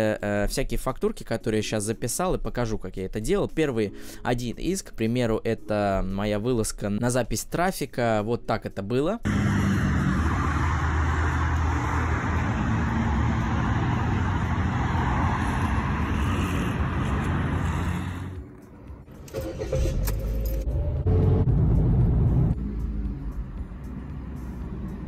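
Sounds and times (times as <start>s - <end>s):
passing cars on road: 9.3s - 25.0s
road noise inside moving car: 9.3s - 25.0s.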